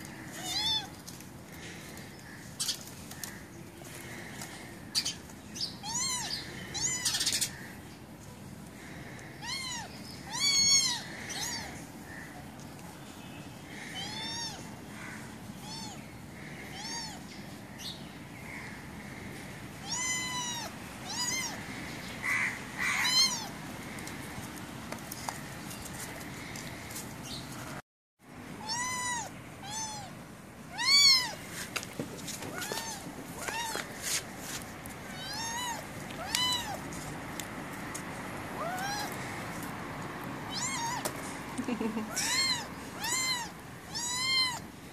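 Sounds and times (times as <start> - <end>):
kitten mewing: 35.1 - 36.8, 38.6 - 39.2, 40.5 - 41.1, 41.8 - 44.6.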